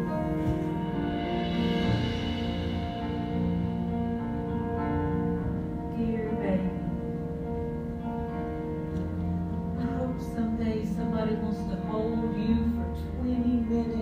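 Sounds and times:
pit band playing slow music: 0.0 - 14.0.

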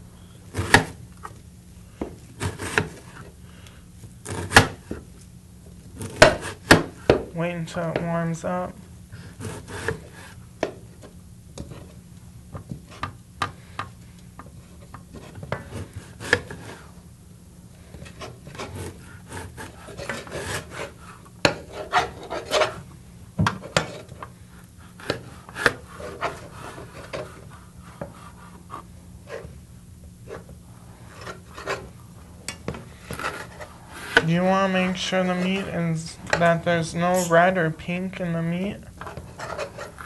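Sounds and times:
knife scraping rub: 9.2 - 10.4, 14.6 - 16.9, 17.9 - 22.8, 24.8 - 29.6, 30.2 - 32.0, 32.9 - 36.0, 39.0 - 40.0.

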